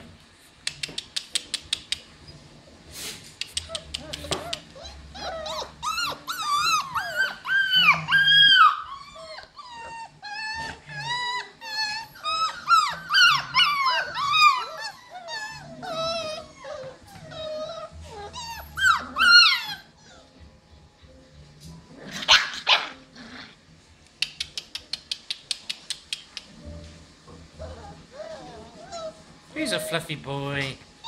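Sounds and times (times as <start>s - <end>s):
puppies yipping and whining: 1.9s - 21.2s, 21.8s - 23.5s, 27.5s - 29.9s.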